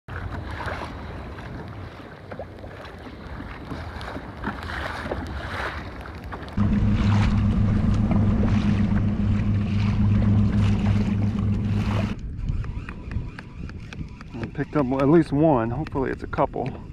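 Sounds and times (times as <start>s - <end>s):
water rushing past hull: 0.1s - 12.3s
water lapping: 0.1s - 16.9s
low motor hum: 6.5s - 15.0s
wind on microphone: 6.6s - 16.9s.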